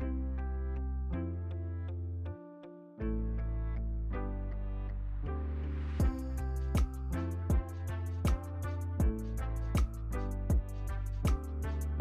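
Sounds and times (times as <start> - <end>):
background music with bass: 0.0 - 2.4, 3.0 - 12.0
light ticking beat: 6.0 - 12.0.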